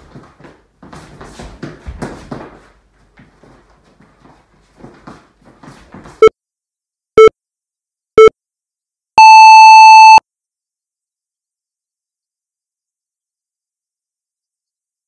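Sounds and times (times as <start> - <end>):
footsteps on wooden floor: 0.0 - 6.2
long higher beep: 9.2 - 10.2
short electronic beeps: 9.2 - 10.2.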